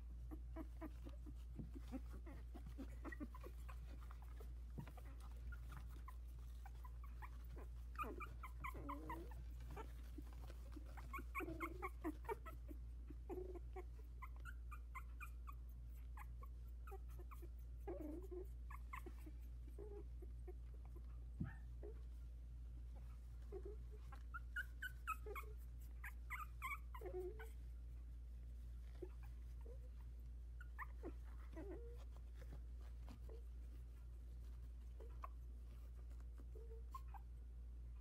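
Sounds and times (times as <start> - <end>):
puppies whimpering: 0.0 - 22.2, 23.0 - 27.7, 28.8 - 33.8
faint scuffling clicks: 0.8 - 12.2.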